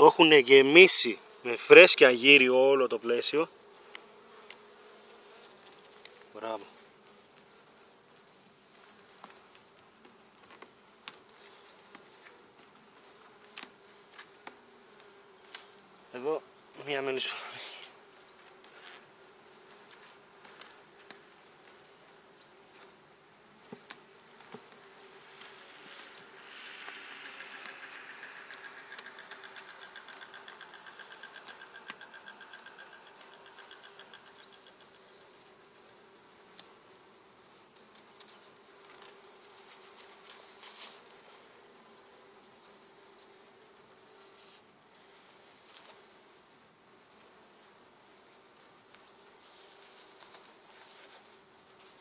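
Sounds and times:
honeybees humming: 0:00.0 - 0:52.0
hive tool clicking on wooden frames: 0:23.6 - 0:25.6, 0:27.2 - 0:35.0
rapid regular ticking: 0:27.3 - 0:34.7.

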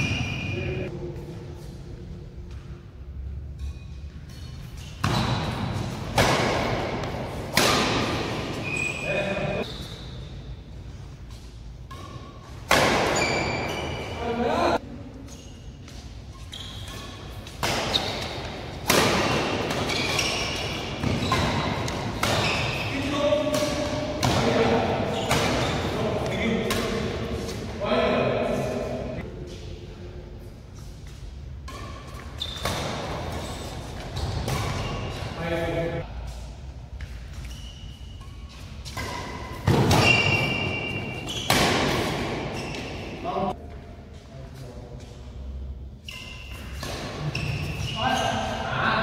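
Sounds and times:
shoes thudding and squeaking: 0:00.0 - 0:00.9, 0:03.6 - 0:10.5, 0:11.2 - 0:27.6, 0:31.6 - 0:35.4, 0:36.9 - 0:43.4, 0:46.0 - 0:48.6
rackets striking shuttlecock: 0:05.0 - 0:08.6, 0:16.8 - 0:27.1.

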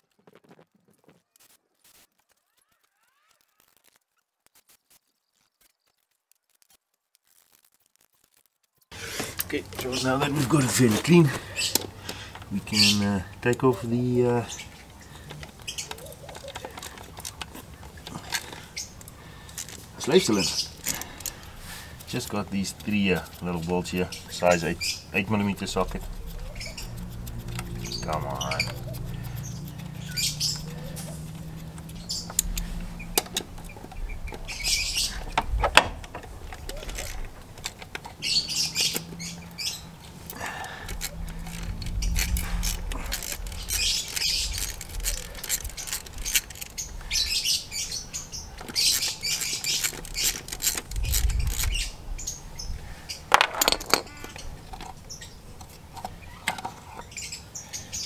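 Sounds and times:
ratchet clicking: 0:15.3 - 0:52.3.

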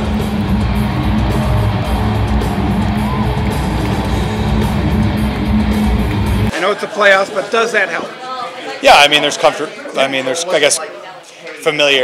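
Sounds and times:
loud guitar music: 0:00.0 - 0:06.5.

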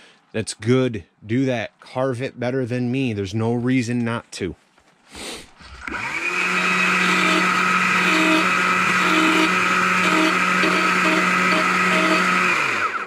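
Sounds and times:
electric chainsaw cutting wood: 0:05.8 - 0:13.0.

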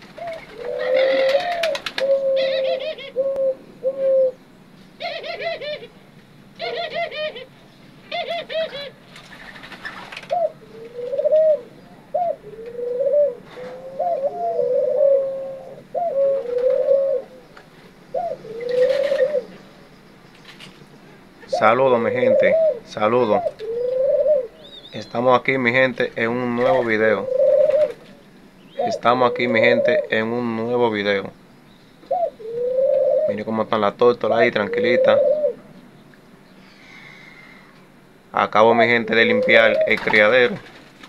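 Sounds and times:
doves cooing: 0:00.0 - 0:41.0.

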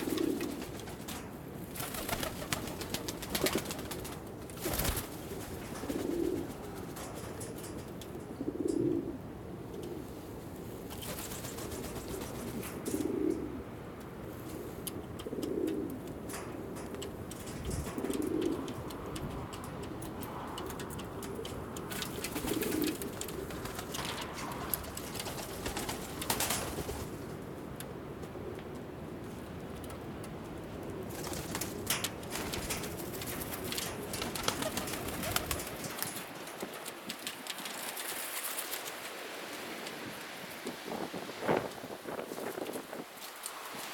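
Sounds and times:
pigeons cooing: 0:00.0 - 0:01.2, 0:01.8 - 0:10.4, 0:11.0 - 0:27.3
wings fluttering: 0:00.0 - 0:09.0, 0:10.8 - 0:13.6, 0:14.4 - 0:27.4, 0:31.0 - 0:43.9.

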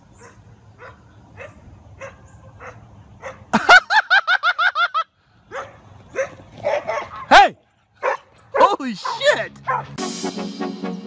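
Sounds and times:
small dog barking and yipping: 0:00.2 - 0:03.5, 0:05.5 - 0:10.0.

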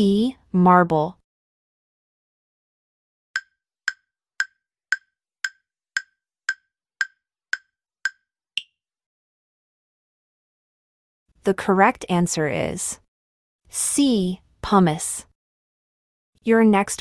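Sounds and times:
timer ticks: 0:03.4 - 0:08.7.

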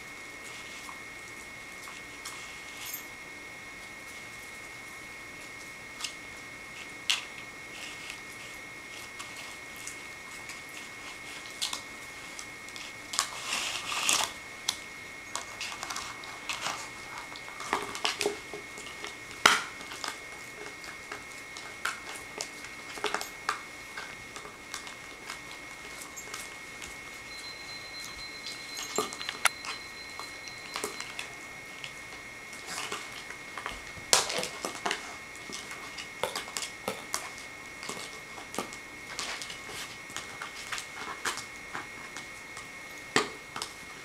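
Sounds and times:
puppies scuffling on carpet: 0:15.2 - 0:42.3.

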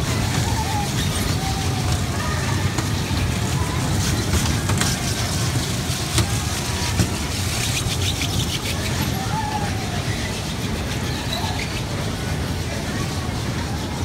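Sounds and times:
carousel ride rumbling: 0:00.0 - 0:14.0
noisy arcade background: 0:00.0 - 0:14.0.

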